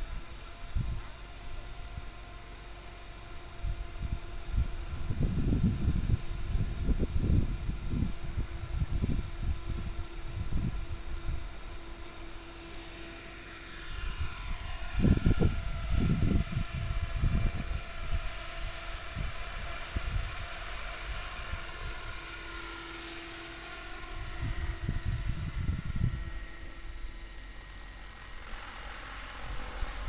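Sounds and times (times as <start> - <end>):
wind rumble on microphone: 0.0 - 12.4, 13.2 - 30.0
model helicopter rotor whine: 0.0 - 30.0.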